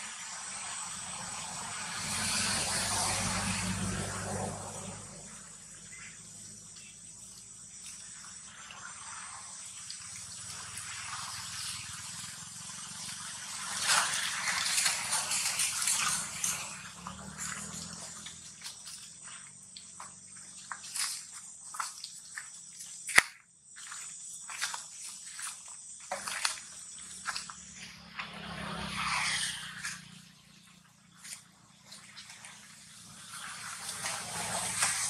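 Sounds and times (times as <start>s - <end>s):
rustling dry leaves: 9.9s - 30.4s, 31.2s - 35.0s
footsteps crunching dry leaves: 13.6s - 30.2s.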